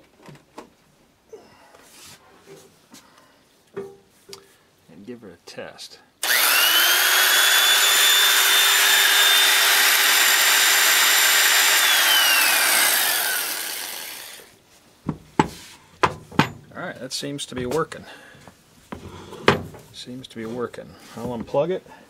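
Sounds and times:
electric motor high whine: 6.2 - 14.5
knocks: 15.1 - 16.7.

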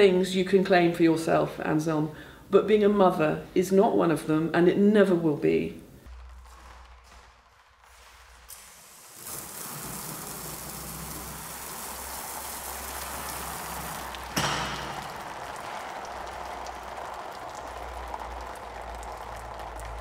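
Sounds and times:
hose spraying water: 7.8 - 18.0
sharp knock: 14.4 - 15.6.

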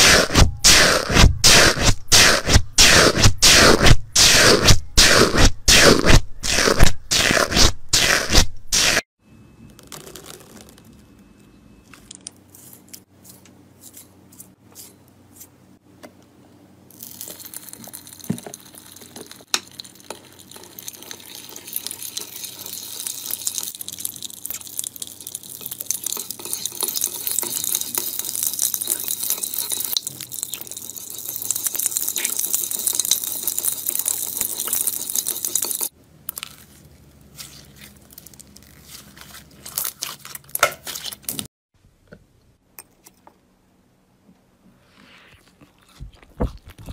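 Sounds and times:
liquid hiss from squeezed bottle: 0.0 - 9.0
foamy slime crunching and squishing: 9.8 - 11.0, 36.3 - 41.5
metal spoon scraping slime in dish: 12.1 - 15.5.

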